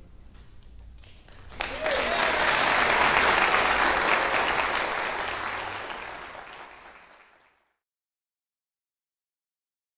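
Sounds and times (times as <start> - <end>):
audience applauding: 1.3 - 7.8.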